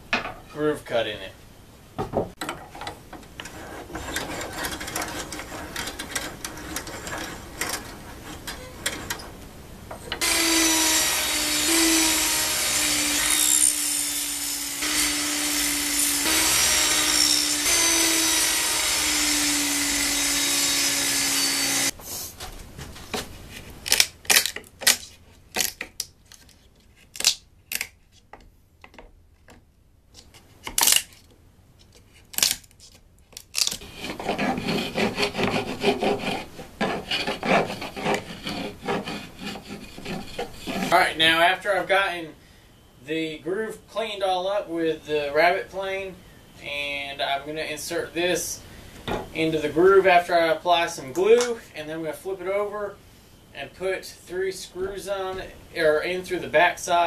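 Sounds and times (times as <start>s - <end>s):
chisel tapping and scraping: 2.3s - 9.4s, 33.8s - 40.9s
table saw cutting: 10.2s - 22.0s, 33.8s - 40.9s.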